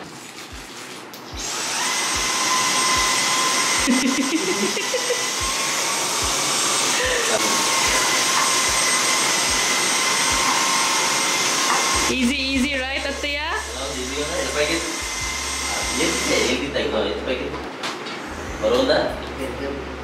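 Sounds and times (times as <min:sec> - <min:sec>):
cordless vacuum cleaner whining: 0:01.4 - 0:16.8.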